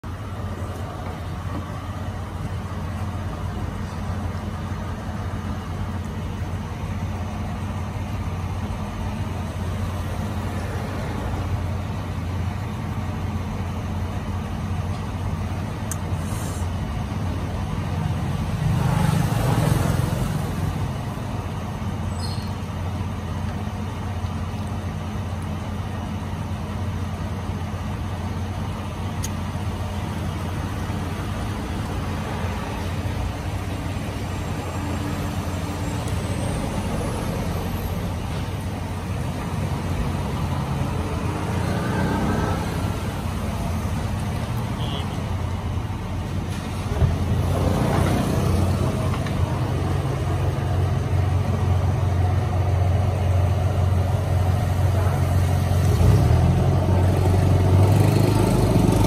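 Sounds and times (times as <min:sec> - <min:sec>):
road traffic hum: 0:00.0 - 0:59.0
vehicle passing: 0:31.0 - 0:44.6.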